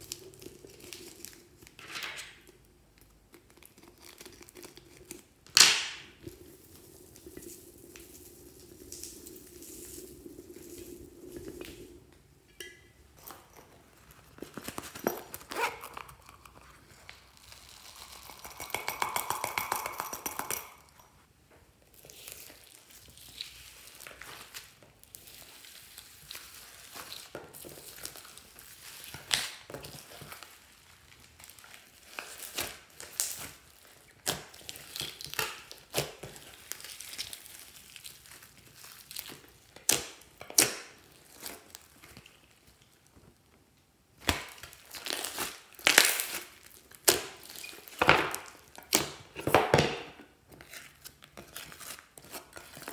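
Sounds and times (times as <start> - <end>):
slime crackling and popping: 0.0 - 1.8, 2.4 - 12.2, 21.9 - 43.5, 44.1 - 49.8.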